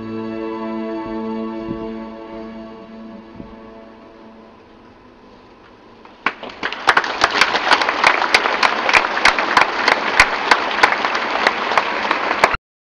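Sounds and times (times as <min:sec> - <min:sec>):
audience applauding: 0:06.2 - 0:12.6.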